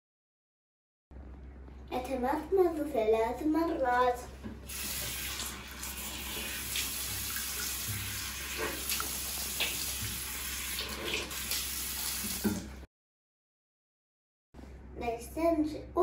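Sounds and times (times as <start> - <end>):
tap water running into basin: 4.4 - 12.8
boy rinsing his mouth: 4.7 - 12.8
water splashes: 4.7 - 12.8.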